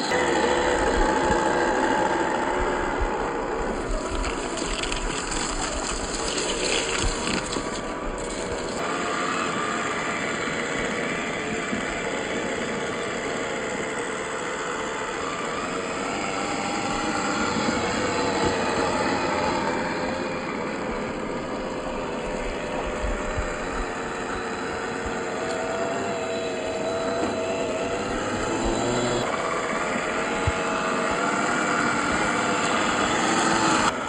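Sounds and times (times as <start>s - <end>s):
crackling noise: 0.0s - 8.8s
electric motor whining: 0.0s - 34.0s.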